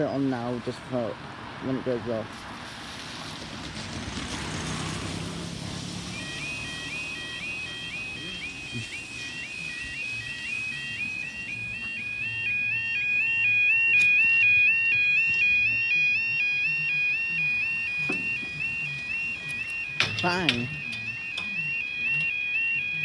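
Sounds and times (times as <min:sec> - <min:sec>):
level crossing two-tone alarm: 0:05.8 - 0:23.0.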